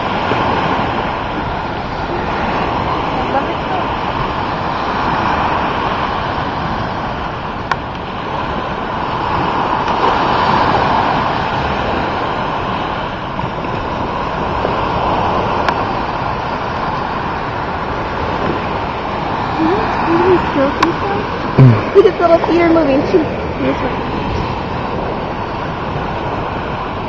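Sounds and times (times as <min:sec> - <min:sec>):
ocean surf on beach: 0:00.0 - 0:27.0
wind on microphone: 0:00.0 - 0:27.0.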